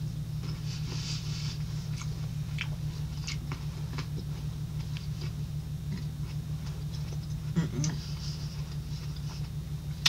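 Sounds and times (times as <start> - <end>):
steady low hum: 0.0 - 10.0
wet chewing mouth clicks: 1.9 - 4.2.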